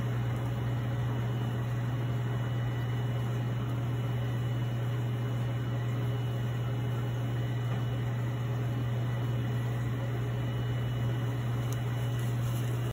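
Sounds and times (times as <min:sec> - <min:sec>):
low machine hum: 0:00.0 - 0:12.9.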